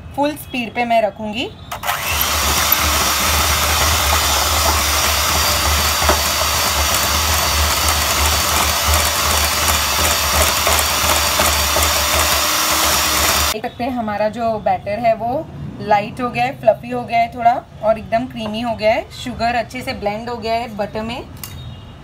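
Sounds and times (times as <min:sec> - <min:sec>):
electric hand mixer running: 0:01.7 - 0:13.6.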